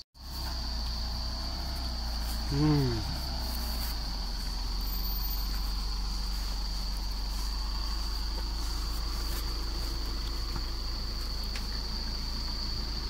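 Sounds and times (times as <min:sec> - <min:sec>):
diesel engine pulling at low speed: 0:00.2 - 0:13.0
high-pitched insect drone: 0:00.2 - 0:13.0.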